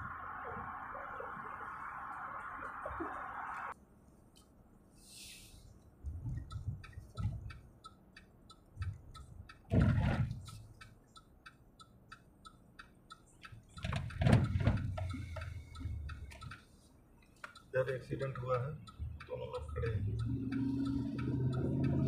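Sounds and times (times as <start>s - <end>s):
low rumbles: 0.0s - 3.8s
turn signal ticking: 5.6s - 22.0s.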